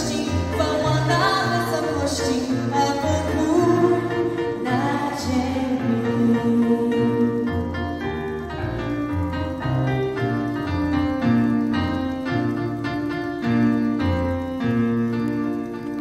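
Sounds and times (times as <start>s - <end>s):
electric keyboard piano chords: 0.0s - 16.0s.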